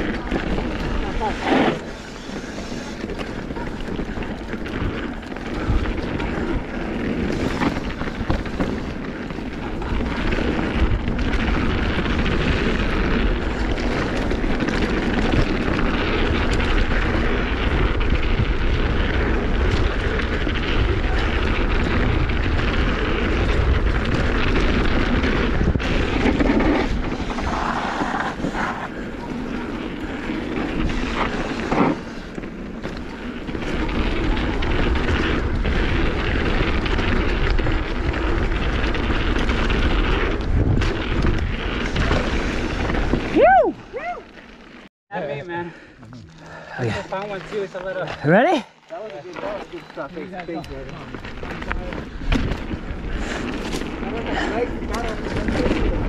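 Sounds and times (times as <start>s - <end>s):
wind buffeting microphone: 0.0s - 44.2s
tyre and trail noise: 0.0s - 56.0s
bike knocks and rattles: 3.1s - 28.6s, 49.4s - 56.0s.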